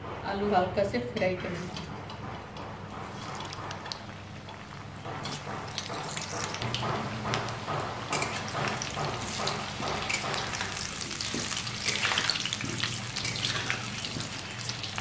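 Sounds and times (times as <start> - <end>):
potatoes sizzling in hot oil: 3.9 - 15.0
spatula scraping a pan: 8.1 - 14.6.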